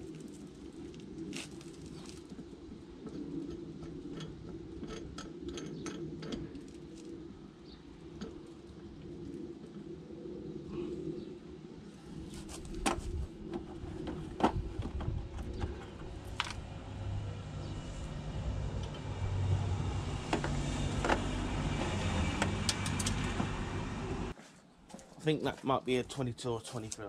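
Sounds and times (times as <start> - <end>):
low rumble: 13.0 - 24.4.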